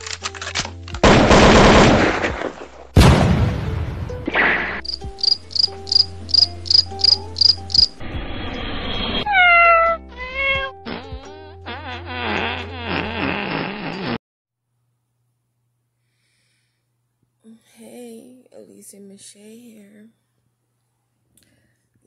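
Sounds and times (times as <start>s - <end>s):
crickets chirping: 4.8s - 8.0s
cat meowing: 9.3s - 10.8s.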